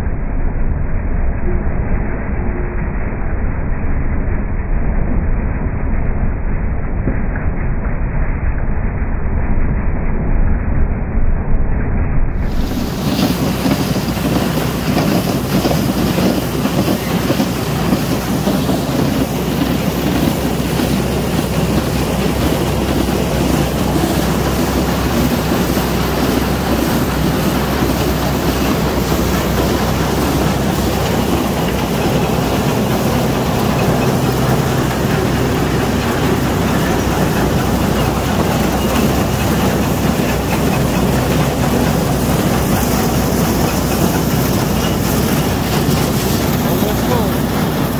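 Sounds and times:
tractor engine running: 12.4s - 47.9s
elevator chain and paddles clattering: 12.9s - 47.9s.

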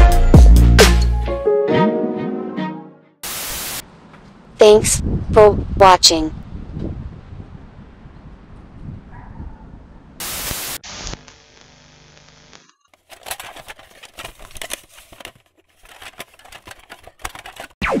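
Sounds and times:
static burst: 3.2s - 3.8s, 10.2s - 12.6s
crackling and pops: 10.2s - 13.0s.

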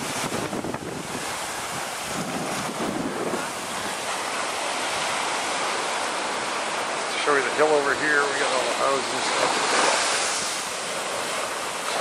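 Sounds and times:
wind buffeting microphone: 0.0s - 5.5s
sea surf washing onto beach: 0.0s - 12.0s.

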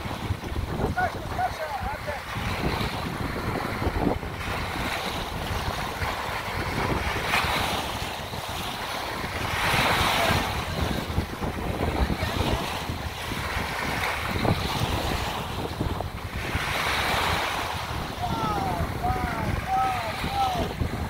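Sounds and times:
small waves washing onto sand: 0.0s - 21.0s
wind buffeting microphone: 0.0s - 21.0s.

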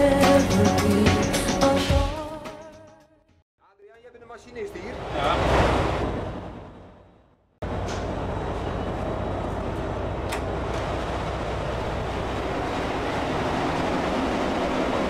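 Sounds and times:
engine-room machinery racket: 7.6s - 15.0s.

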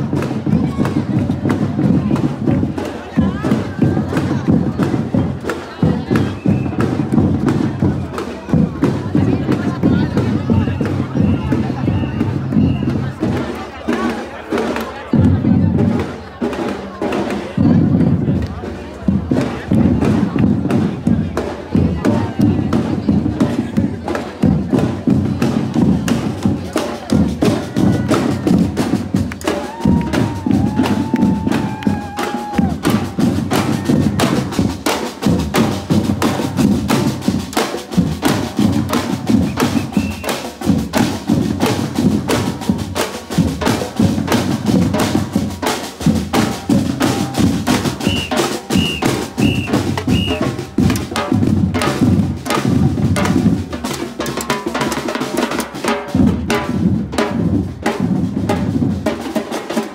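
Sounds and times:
snare drums: 0.0s - 59.9s
street drum group playing: 0.0s - 59.9s.

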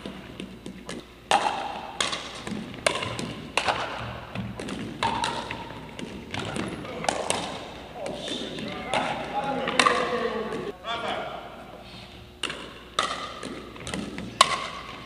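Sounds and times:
ball bouncing on wooden floor: 0.0s - 7.6s
paddles hitting plastic ball: 0.0s - 10.7s, 12.4s - 15.0s.

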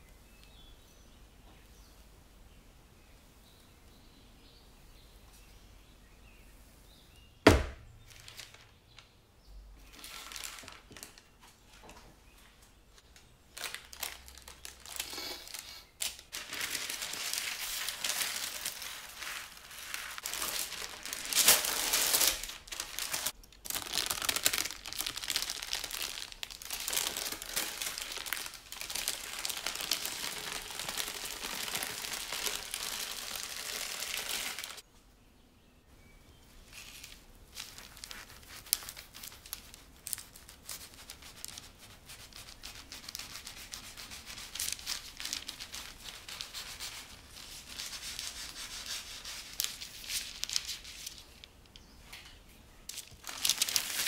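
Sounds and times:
sharp knock: 7.5s - 7.9s
baking paper rustling: 7.5s - 9.0s, 9.8s - 34.8s, 36.6s - 51.8s, 52.8s - 54.0s.

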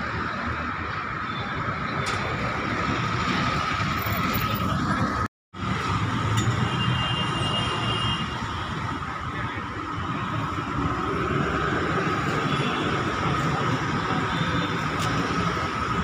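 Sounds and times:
street traffic noise: 0.0s - 16.0s.

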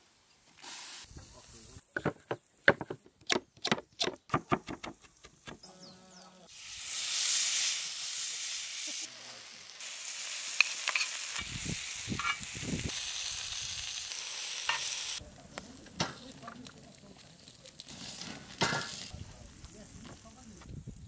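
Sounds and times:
food sizzling on a griddle: 0.0s - 1.8s, 6.5s - 21.0s
cooking fat popping: 9.7s - 15.2s.

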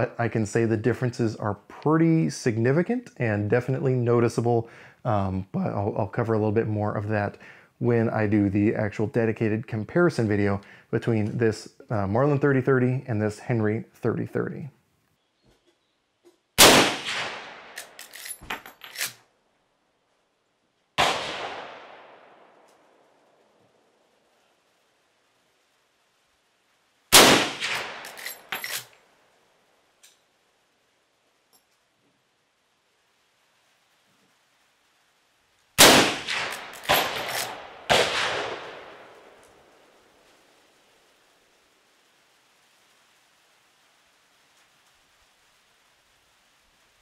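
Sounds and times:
rifle shots with echo: 16.6s - 17.8s, 21.0s - 22.5s, 27.2s - 28.6s, 35.8s - 39.4s.

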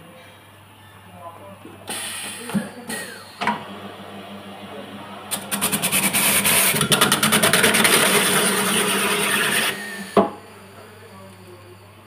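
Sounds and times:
coconut peeling machine rasping: 1.9s - 11.3s.

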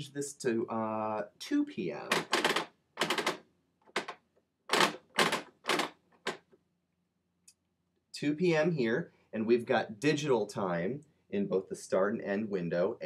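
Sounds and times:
plastic gears ratcheting clicks: 2.1s - 6.4s.

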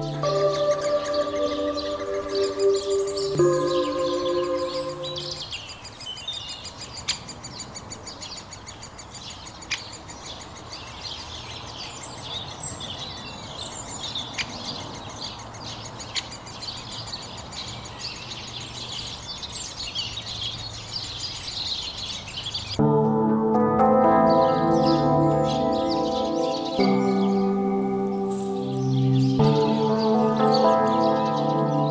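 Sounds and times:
held musical chord: 0.0s - 5.5s, 22.8s - 31.9s
songbirds chirping and singing: 0.0s - 31.9s.

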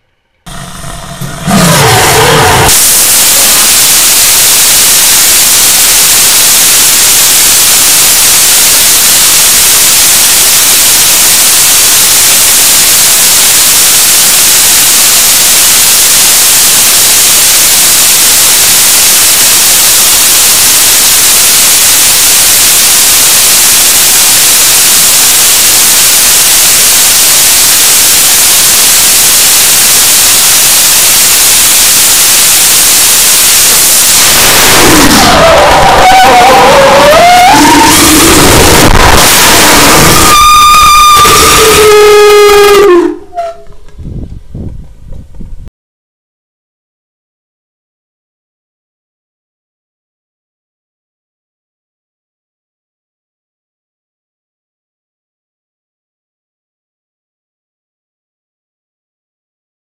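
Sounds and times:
rocket engine roaring: 0.4s - 43.4s.

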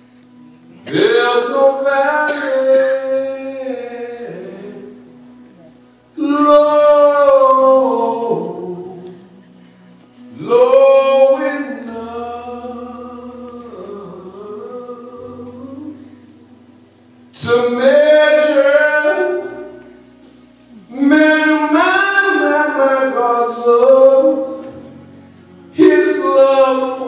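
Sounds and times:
man singing into a microphone: 0.8s - 5.1s, 6.2s - 9.4s, 10.3s - 16.4s, 17.3s - 20.0s, 20.8s - 24.9s, 25.7s - 27.0s.

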